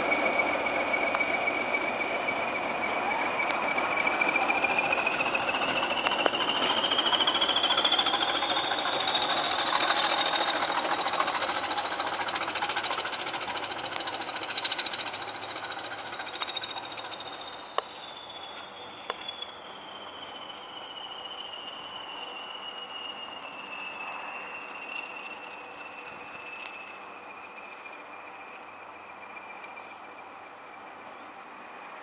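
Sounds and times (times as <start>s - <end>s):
rhythmic diesel engine clatter: 0.0s - 23.0s
turbocharger whistle: 0.0s - 27.0s.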